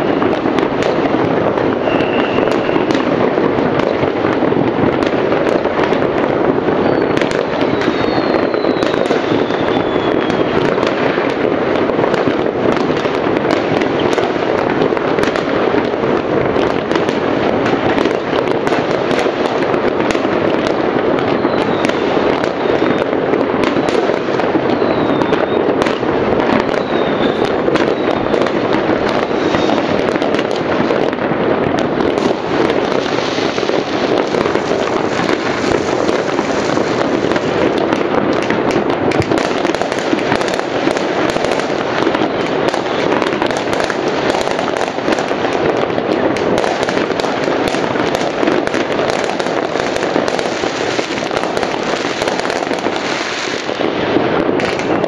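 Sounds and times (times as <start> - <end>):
falling firework whistles: 0.0 - 3.4, 6.6 - 11.4, 17.9 - 31.3, 32.0 - 38.5, 46.5 - 55.0
fireworks bangs and crackles: 0.0 - 55.0.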